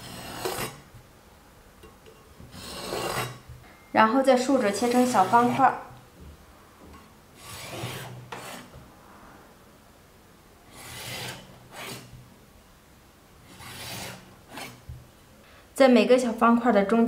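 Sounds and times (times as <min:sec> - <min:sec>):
cleaver cutting onto wooden board: 0:00.0 - 0:00.9, 0:02.5 - 0:03.5, 0:04.8 - 0:05.7, 0:07.4 - 0:08.8, 0:10.7 - 0:12.1, 0:13.5 - 0:14.9
rolling pin scraping dough: 0:00.0 - 0:01.1, 0:02.0 - 0:03.6, 0:04.5 - 0:06.0, 0:06.8 - 0:08.9, 0:10.7 - 0:12.2, 0:13.4 - 0:15.0.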